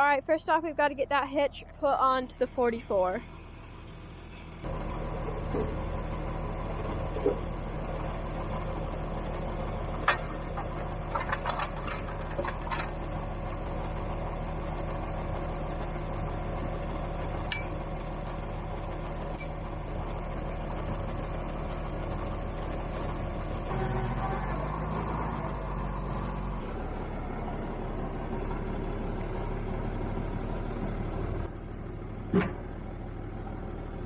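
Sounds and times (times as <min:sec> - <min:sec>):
tractor engine idling: 0:00.0 - 0:34.0
metal clanks of wrenches: 0:16.8 - 0:18.7, 0:19.3 - 0:19.6.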